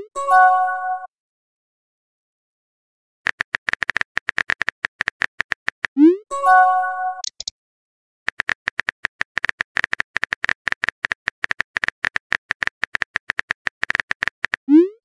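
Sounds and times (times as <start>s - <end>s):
keyboard tap clicks: 7.2s - 7.5s.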